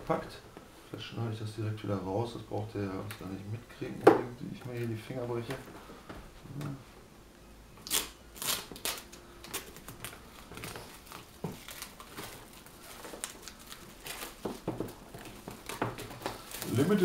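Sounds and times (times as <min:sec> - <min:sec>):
cardboard box crinkling: 0:09.6 - 0:17.0.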